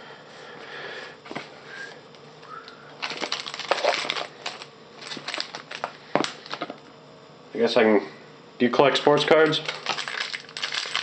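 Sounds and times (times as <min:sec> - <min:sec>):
foil wrapper crinkling and tearing: 0:03.0 - 0:06.7, 0:09.6 - 0:11.0.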